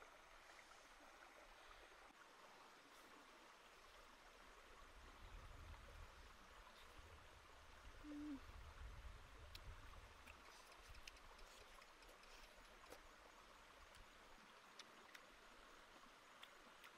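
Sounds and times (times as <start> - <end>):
faint outdoor hiss: 0.0 - 16.9
faint clicks: 9.5 - 13.1.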